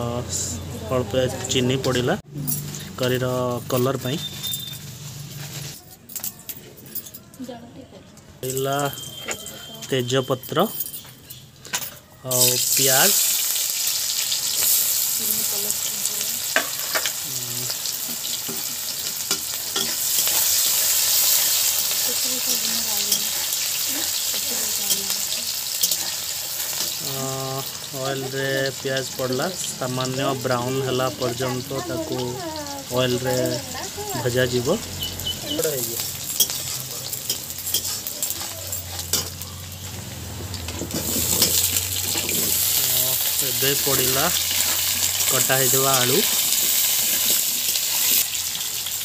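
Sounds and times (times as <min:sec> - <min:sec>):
onions sizzling in hot oil: 0:00.0 - 0:05.8, 0:12.3 - 0:49.0
metal spatula scraping pan: 0:17.8 - 0:27.0, 0:35.0 - 0:39.9, 0:40.6 - 0:43.3.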